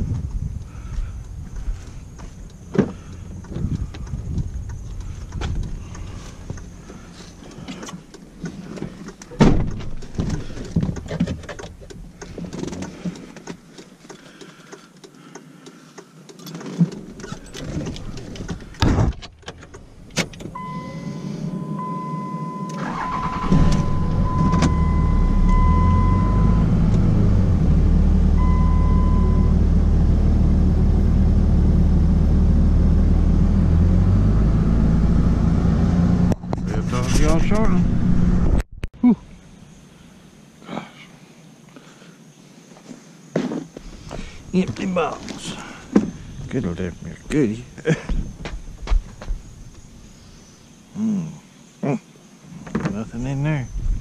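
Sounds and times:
vehicle engine running: 0.0 - 7.7, 20.6 - 38.7
beeping chime: 20.6 - 26.6.

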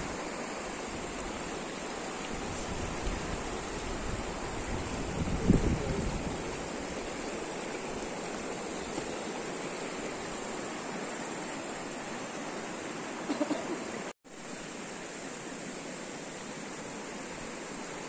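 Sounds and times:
river rushing over stones: 0.0 - 18.0.

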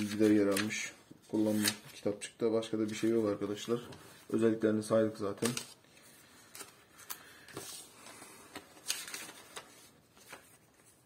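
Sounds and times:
paper rustling: 0.0 - 2.1, 5.1 - 11.0.

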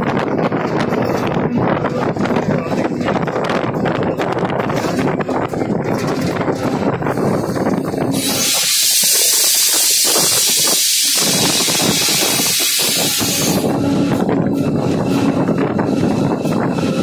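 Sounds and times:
air brake hissing: 8.2 - 13.6
diesel engine droning: 10.0 - 17.0.

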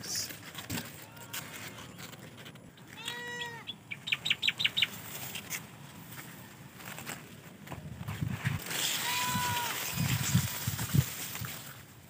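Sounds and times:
drawn-out animal call: 2.9 - 4.6.

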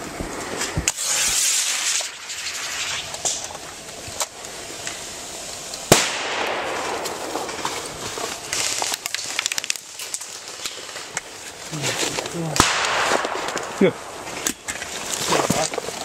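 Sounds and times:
sharp crack: 0.0 - 5.0, 5.6 - 16.0
automatic airsoft fire: 5.9 - 7.1.

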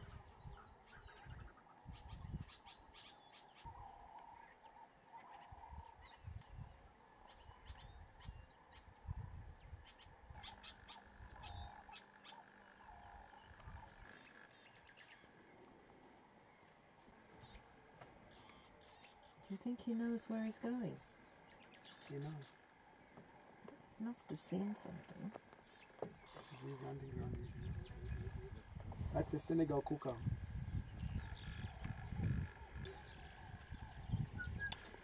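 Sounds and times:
frog calls: 9.8 - 14.7, 30.9 - 35.0.

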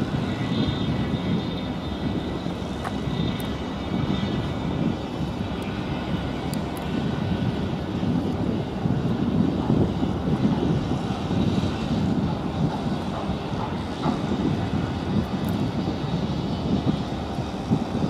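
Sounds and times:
ship engine low rumble: 0.0 - 18.0.

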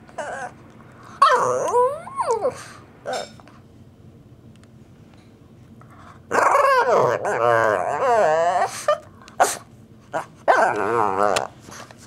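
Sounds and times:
dog making wavering vocal noises: 6.3 - 11.6.

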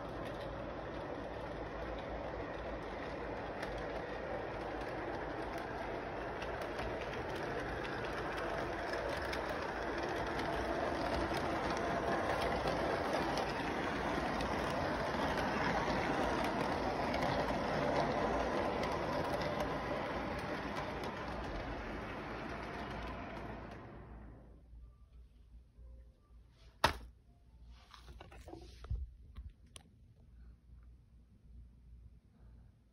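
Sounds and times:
model train whirring on track: 0.0 - 24.6.

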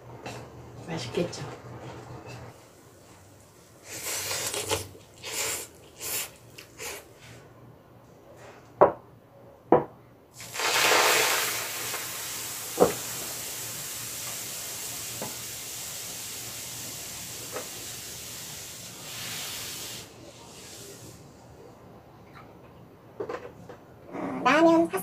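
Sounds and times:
milk hissing in hot pan: 10.4 - 21.1.

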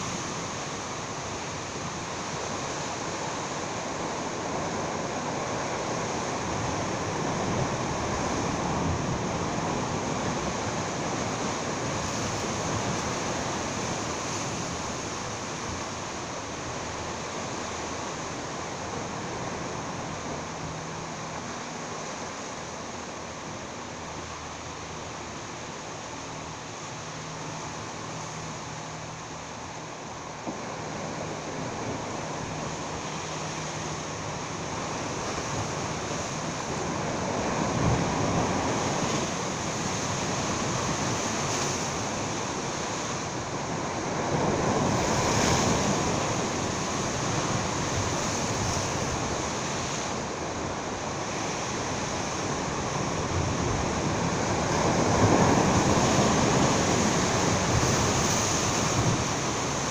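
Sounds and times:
sea waves washing against rocks: 29.6 - 59.9
wind on microphone: 30.3 - 59.9.

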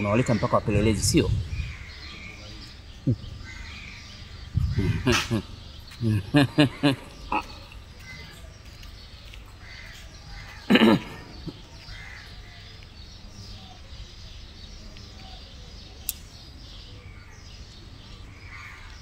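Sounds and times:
faint outdoor background: 0.0 - 19.0
sharp click: 16.0 - 16.4.

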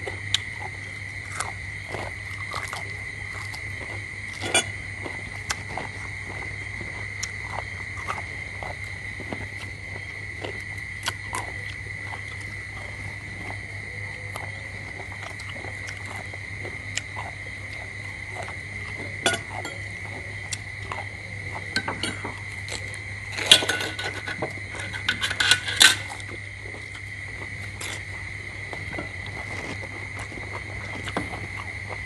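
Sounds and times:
dishes clinking: 4.4 - 4.8, 19.2 - 19.9, 21.7 - 22.4, 23.4 - 26.3.

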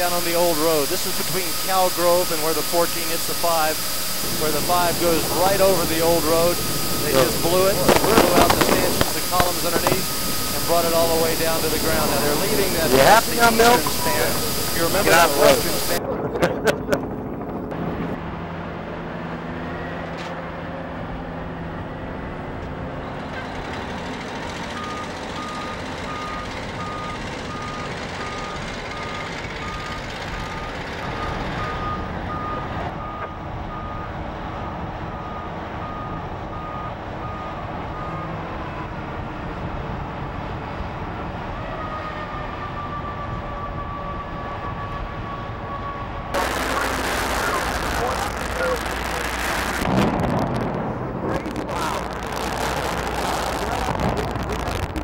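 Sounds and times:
backup alarm beeping: 0.0 - 16.0
heavy machinery engines running: 0.0 - 44.4, 45.0 - 55.0.

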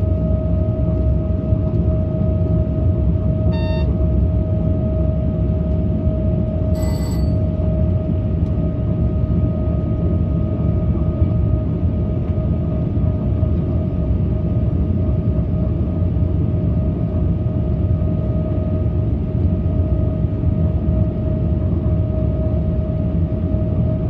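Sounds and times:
constant whine: 0.0 - 13.8
short beeps: 3.5 - 3.9, 6.8 - 7.4.

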